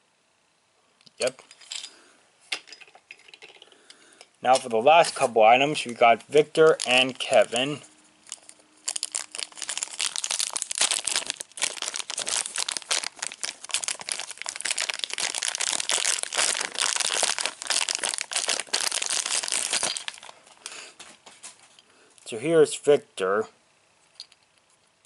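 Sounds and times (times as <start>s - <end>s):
plastic bag crinkling: 5.9s - 20.6s.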